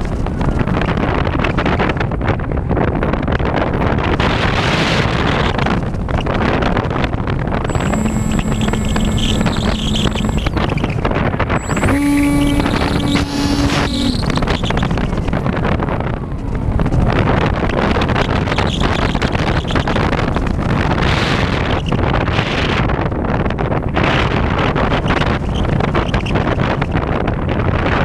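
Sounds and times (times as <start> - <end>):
wind rush over microphone: 0.0 - 28.0
electric motor and propeller whine: 7.7 - 10.9, 11.6 - 15.3.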